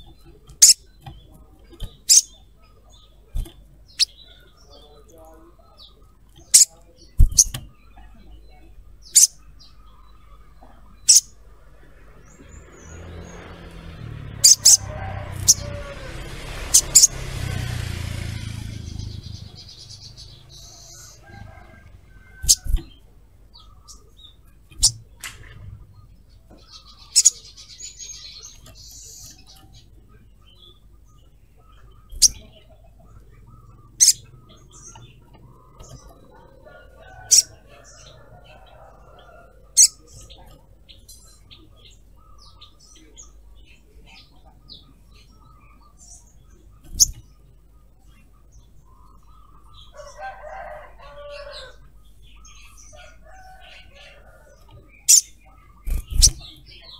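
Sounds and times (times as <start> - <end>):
faint bird chirping: 0.0 - 56.9
sharp high-pitched bird calls: 1.8 - 2.4, 9.0 - 9.9, 11.0 - 11.4, 33.3 - 35.0, 54.8 - 56.9
low rumble: 11.4 - 22.2.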